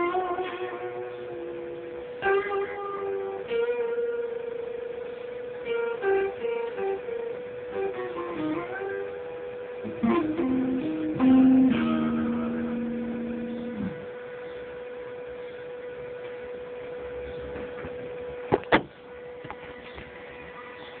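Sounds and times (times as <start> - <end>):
steady hum: 0.0 - 21.0
acoustic guitar note ringing: 9.8 - 14.2.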